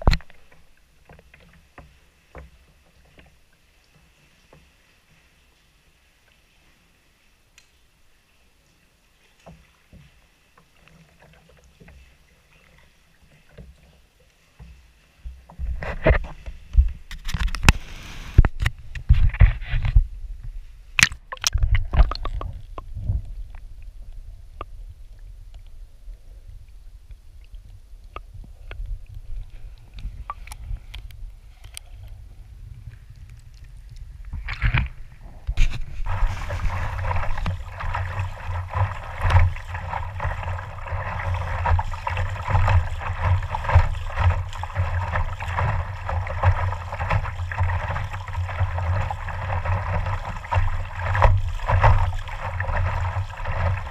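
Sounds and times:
water splashing against camera housing: 0.0s - 0.6s, 15.6s - 20.0s, 21.0s - 23.6s, 33.1s - 53.9s
muffled underwater rumble: 15.3s - 53.9s.

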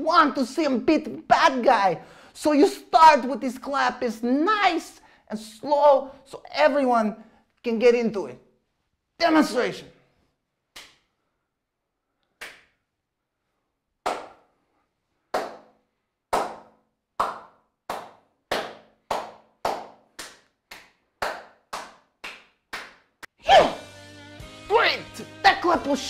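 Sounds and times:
slow hand clapping: 10.7s - 11.1s, 12.4s - 12.9s, 14.0s - 14.6s, 15.3s - 23.4s.

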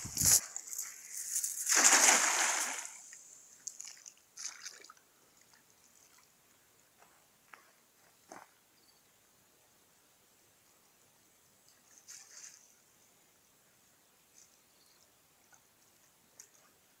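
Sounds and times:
net splashing on water: 0.2s - 3.1s
faint splashes and drips: 0.2s - 6.5s.

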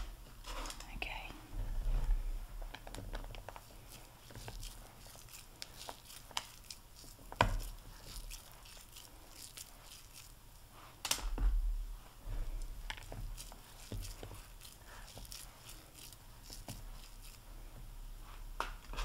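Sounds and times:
crumbly mixture crackling: 0.0s - 11.5s, 12.1s - 19.0s
sticky squishing: 2.5s - 11.3s, 12.4s - 17.8s.

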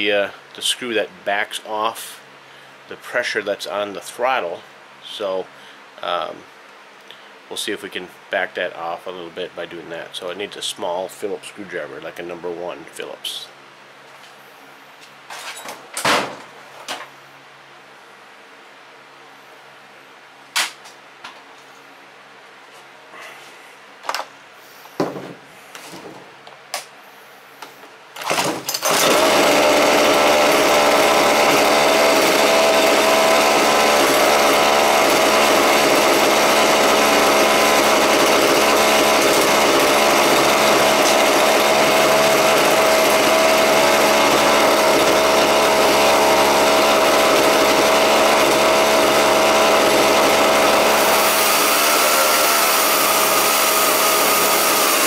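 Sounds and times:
chainsaw engine running: 28.2s - 55.0s.

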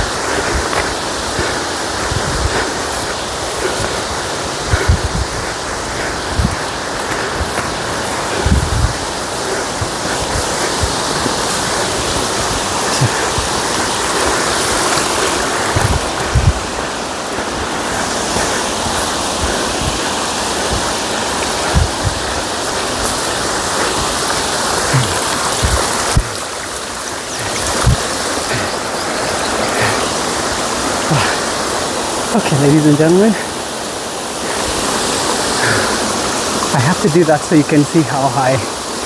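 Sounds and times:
stream and waterfall rushing: 0.0s - 39.0s
low thumps on microphone: 4.7s - 5.4s, 8.4s - 9.0s, 15.8s - 16.6s.

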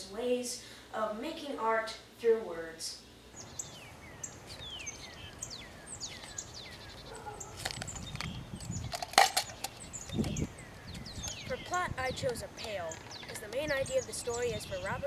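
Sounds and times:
birds whistling: 3.4s - 15.0s
metal pail and scoop clicking: 8.9s - 9.7s.

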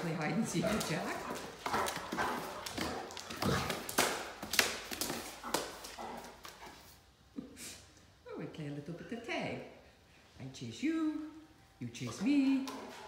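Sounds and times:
dog claws tapping on stone tiles: 0.5s - 6.7s.

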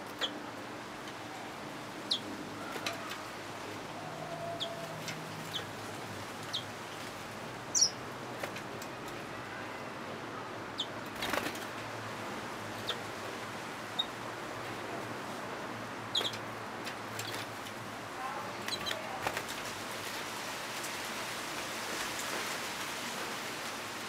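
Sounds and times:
bird chirping: 2.0s - 3.2s, 4.1s - 5.7s, 6.4s - 7.0s, 7.7s - 8.0s, 10.8s - 11.0s, 12.7s - 13.0s, 16.1s - 16.4s
wings fluttering: 2.1s - 9.2s, 11.0s - 11.8s, 16.1s - 17.8s, 18.5s - 20.2s.

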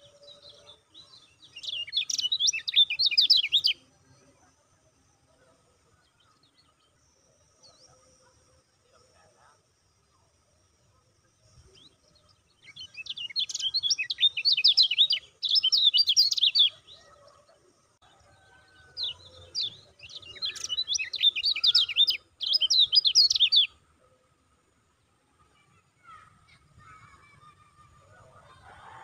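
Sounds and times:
white-eye bird chirping: 0.0s - 3.8s, 11.7s - 17.2s, 19.0s - 23.8s.

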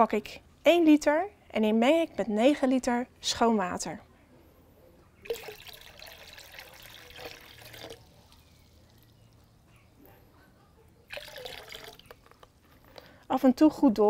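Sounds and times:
liquid pouring between buckets: 5.2s - 9.4s, 11.1s - 12.5s.

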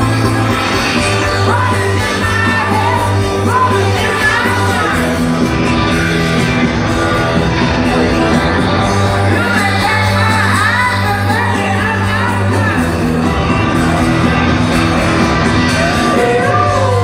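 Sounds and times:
person singing lead vocal: 0.0s - 6.5s, 7.7s - 13.5s
live rock band playing: 0.0s - 17.0s.

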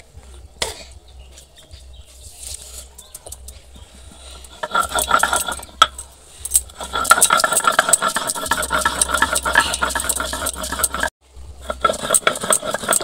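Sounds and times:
stone grinding seeds: 4.3s - 13.0s.

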